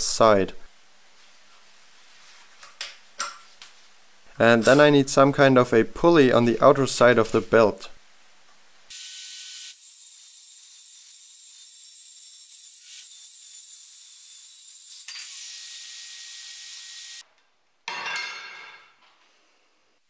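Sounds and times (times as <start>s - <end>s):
circular saw cutting steel: 8.9s - 17.2s.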